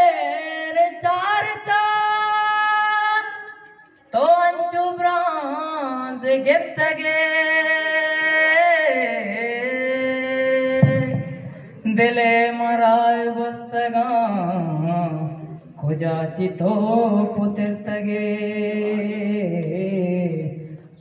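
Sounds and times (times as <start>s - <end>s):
man singing long notes: 6.8s - 20.9s.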